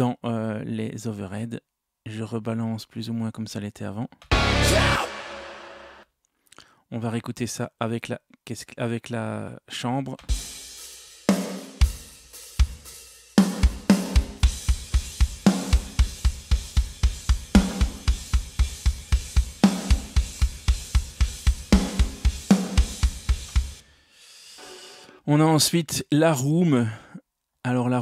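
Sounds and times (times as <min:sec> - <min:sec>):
cymbal wash: 0:04.3 - 0:06.0
fast kick drum: 0:11.8 - 0:12.8, 0:13.4 - 0:23.8.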